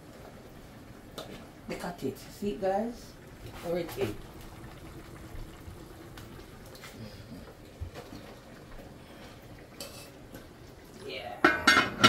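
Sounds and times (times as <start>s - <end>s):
pot simmering: 0.0s - 12.0s.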